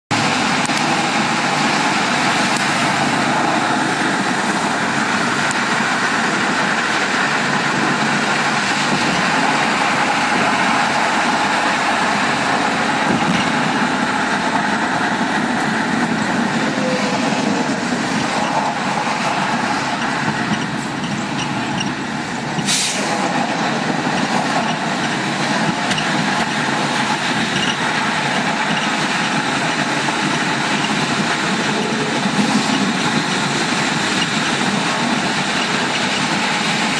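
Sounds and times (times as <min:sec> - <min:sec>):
wind noise: 0:00.1 - 0:36.9
hissing noise burst: 0:22.6 - 0:23.5.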